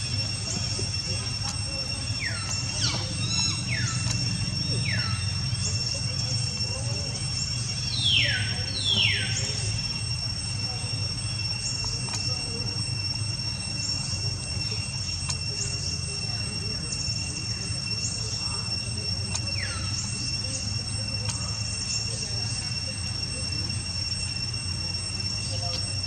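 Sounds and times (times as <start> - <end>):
high-pitched insect drone: 0.0 - 26.0
macaques squealing: 0.0 - 26.0.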